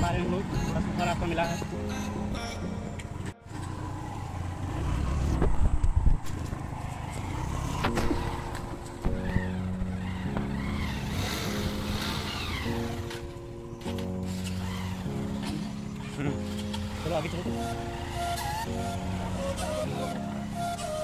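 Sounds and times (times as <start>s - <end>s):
background music with held chords: 0.0s - 3.4s, 8.0s - 21.0s.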